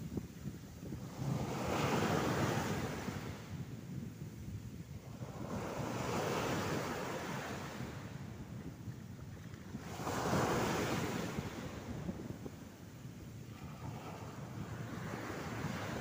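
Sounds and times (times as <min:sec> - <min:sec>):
surf waves washing on beach: 0:00.0 - 0:16.0.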